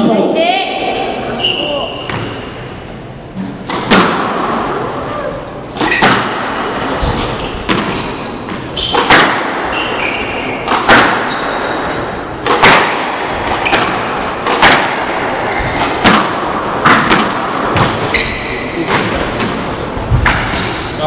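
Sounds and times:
shoes squeaking on wooden floor: 1.3s - 2.5s, 5.7s - 12.1s, 13.5s - 14.8s, 15.4s - 16.0s, 17.7s - 21.0s
squash ball hitting rackets and walls: 1.9s - 2.8s, 3.5s - 21.0s.

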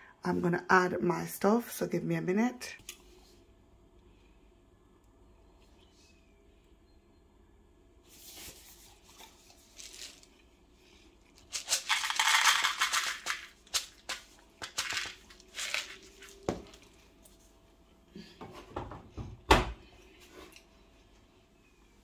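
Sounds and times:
beads rattling in a cardboard tub: 9.7s - 10.3s, 11.4s - 16.4s
beads clicking and knocking: 11.5s - 16.0s.

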